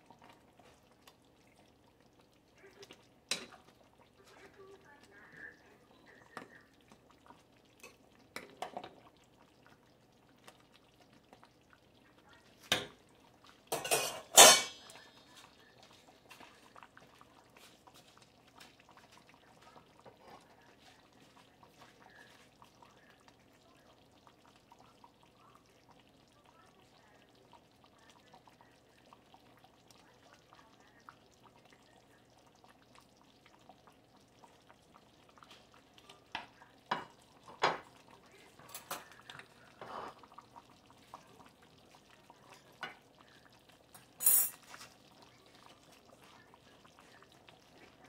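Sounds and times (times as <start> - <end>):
ladle stirring in pot: 0.0 - 4.5, 6.1 - 25.2, 32.4 - 48.0
ladle clanking against pot: 13.7 - 14.9.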